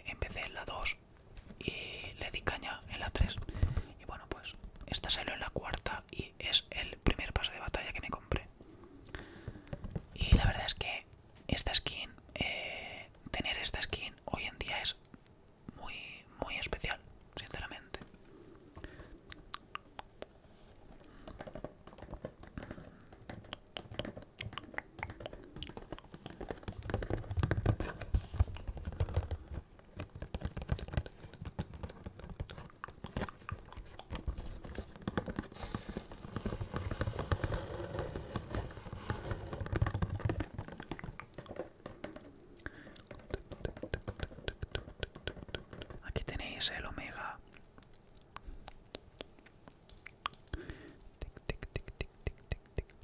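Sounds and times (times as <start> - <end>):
fingers tapping on cardboard box: 18.8 - 46.7, 48.4 - 53.0.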